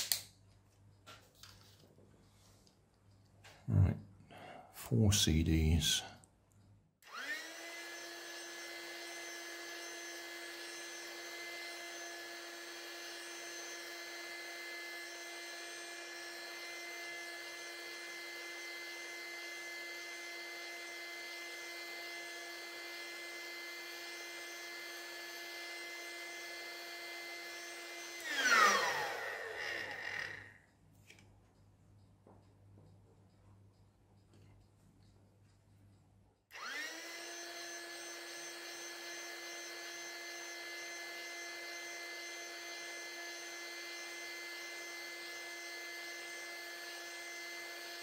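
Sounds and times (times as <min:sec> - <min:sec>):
electric air pump whining: 0:07.0 - 0:30.6, 0:36.5 - 0:48.0.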